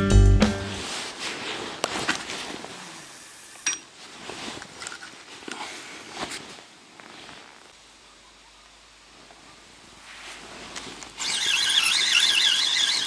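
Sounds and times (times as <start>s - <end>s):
clothing rustling: 0.8s - 3.2s, 3.9s - 8.1s, 9.1s - 11.5s.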